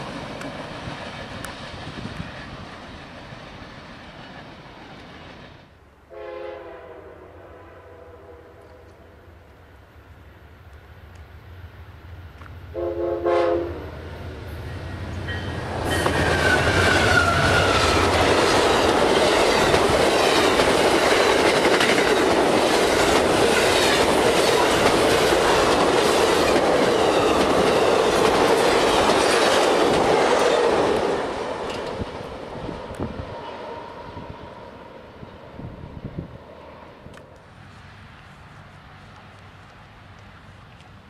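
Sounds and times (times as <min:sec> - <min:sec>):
train rushing past: 0:00.0 - 0:10.2, 0:11.3 - 0:40.6
diesel locomotive engine droning: 0:00.0 - 0:41.0
train air horn blast: 0:06.1 - 0:08.9, 0:12.7 - 0:14.0
wheels clacking over rail joints: 0:14.6 - 0:32.4.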